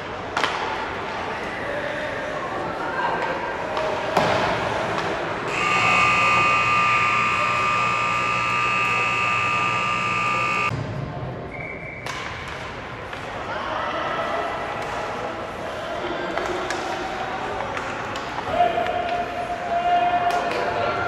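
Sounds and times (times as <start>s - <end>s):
ice rink horn blast: 5.5s - 10.7s.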